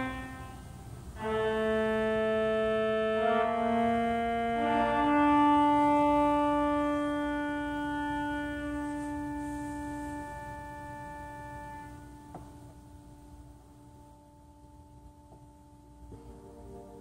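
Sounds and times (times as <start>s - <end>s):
pipe organ sustained chords: 0.0s - 17.0s.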